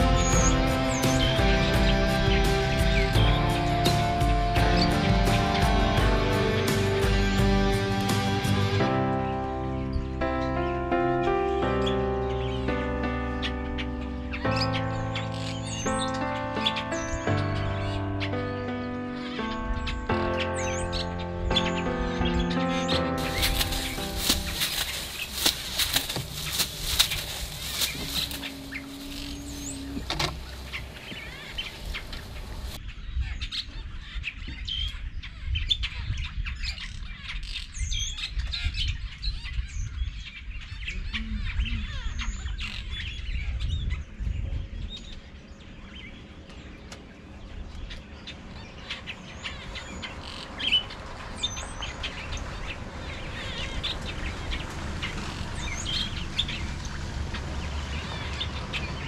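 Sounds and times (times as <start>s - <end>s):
low uneven rumble: 0.0s - 32.8s, 39.0s - 59.0s
birds chirping and calling: 0.0s - 59.0s.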